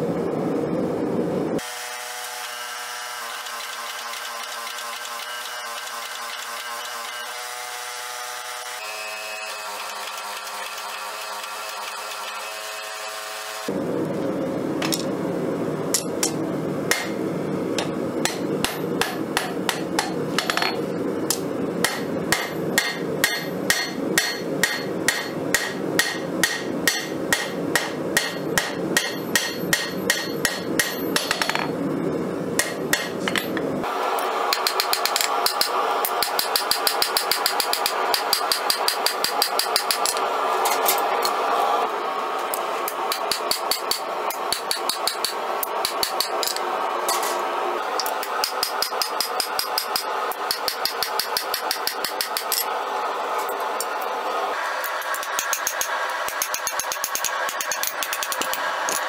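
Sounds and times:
hammer striking steel on anvil: 16.0s - 17.2s, 17.8s - 31.7s, 32.6s - 33.6s, 34.5s - 41.4s, 43.1s - 47.4s, 48.0s - 52.7s, 55.0s - 59.0s.

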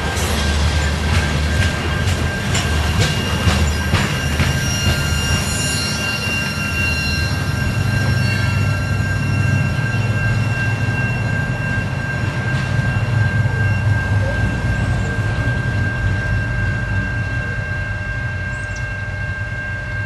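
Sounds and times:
freight train rumbling: 0.0s - 20.0s
high-pitched wheel squeal: 1.8s - 20.0s.

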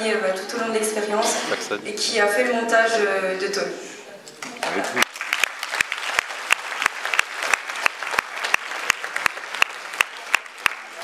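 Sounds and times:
crowd applauding: 4.4s - 11.0s
loud sharp claps close by: 4.4s - 11.0s.

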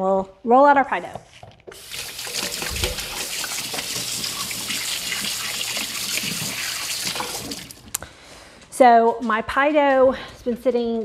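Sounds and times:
tap water gushing into sink: 1.7s - 8.0s.

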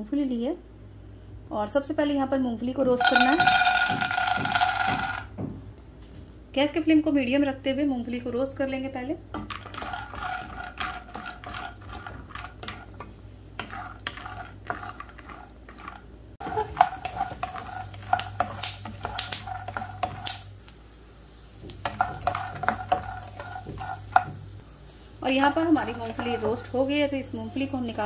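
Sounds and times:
peanuts rattling in a pan: 3.0s - 5.3s, 9.4s - 20.6s, 21.6s - 24.5s, 25.2s - 28.0s
spatula scraping pan: 3.0s - 5.3s, 9.3s - 20.5s, 21.6s - 24.6s, 25.2s - 28.0s.

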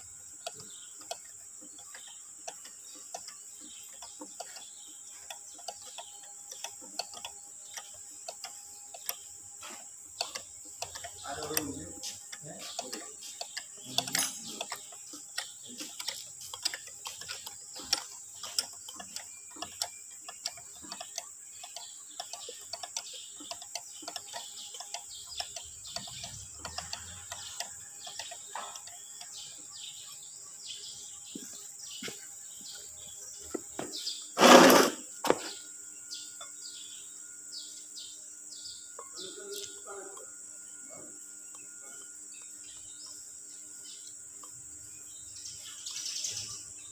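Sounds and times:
insects chirring: 0.0s - 46.9s
hand tools clicking on metal: 0.4s - 29.9s.

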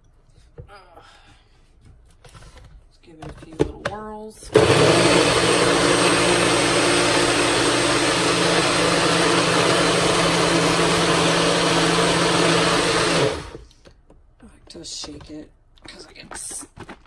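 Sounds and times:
blender motor whirring: 4.5s - 13.6s.

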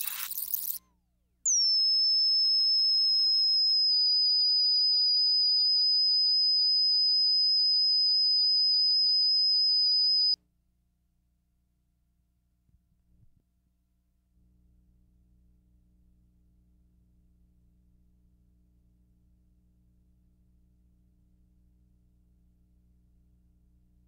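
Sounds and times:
high-pitched test tone: 0.0s - 0.8s.

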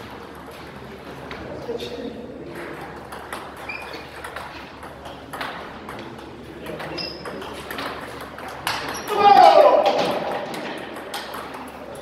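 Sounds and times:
ping pong ball clicking: 10.5s - 12.0s.

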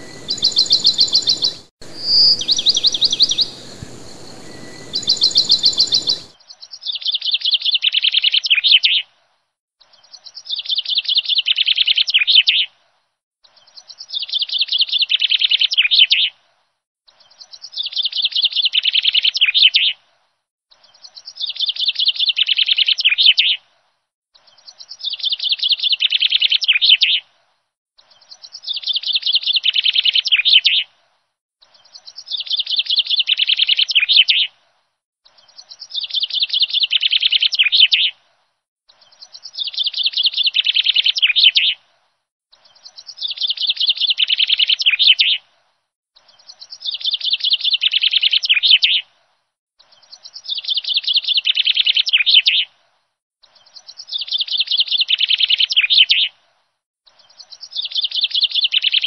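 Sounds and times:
songbird chirping: 0.0s - 7.9s.

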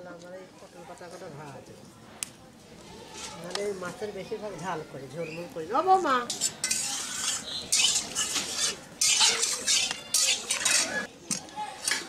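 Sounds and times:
metal bowls and pots clattering: 6.3s - 11.1s.

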